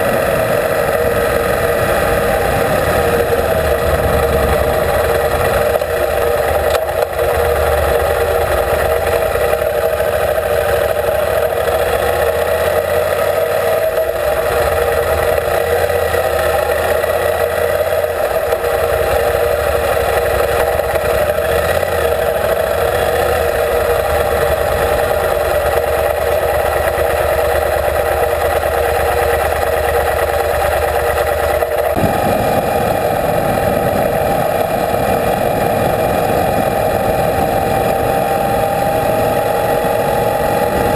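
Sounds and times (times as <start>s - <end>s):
motorcycle engine running: 0.0s - 40.9s
road noise: 0.0s - 40.9s
wind noise: 31.4s - 40.9s.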